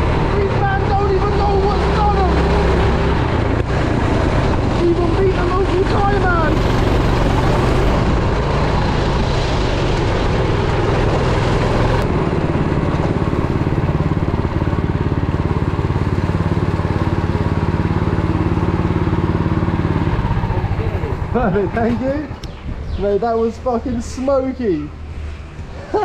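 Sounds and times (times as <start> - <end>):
go-kart engine at speed: 0.0 - 26.0
kart engines idling: 0.0 - 26.0.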